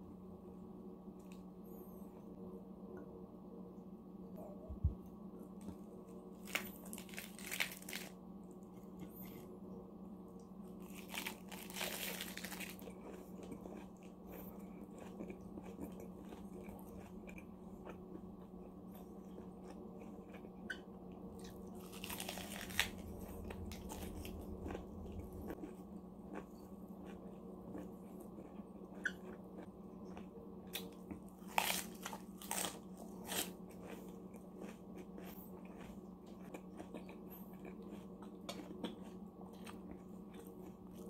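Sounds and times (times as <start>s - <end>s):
low hum: 0.0s - 41.0s
quiet chewing: 4.4s - 41.0s
crisp crunching: 5.6s - 9.4s, 10.8s - 17.3s, 21.4s - 25.8s, 30.8s - 37.0s.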